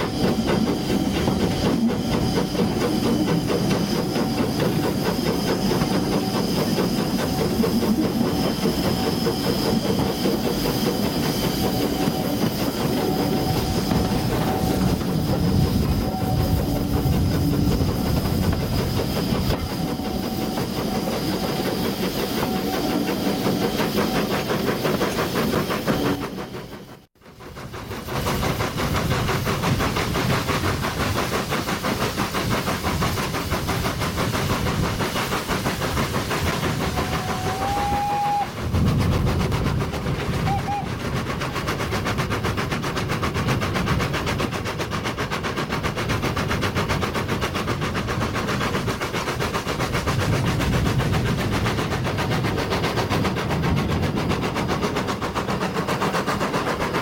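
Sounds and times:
steam train running: 0:00.0 - 0:57.0.

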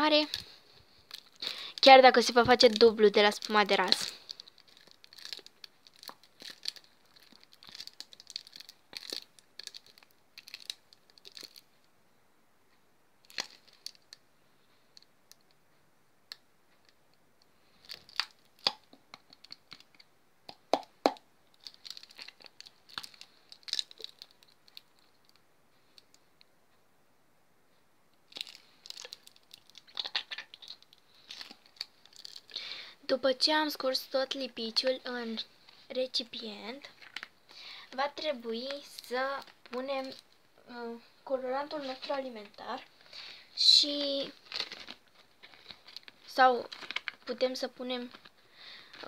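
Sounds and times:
plastic bottle crinkling: 0:00.2 - 0:11.7, 0:13.3 - 0:14.1, 0:17.8 - 0:20.0, 0:20.6 - 0:25.4, 0:28.3 - 0:32.8, 0:36.8 - 0:40.4, 0:41.6 - 0:49.0.

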